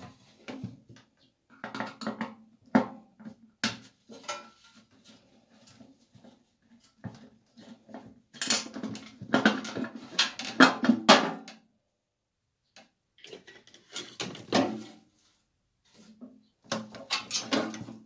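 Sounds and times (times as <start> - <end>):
sheet metal clattering and scraping: 4.0 - 5.9.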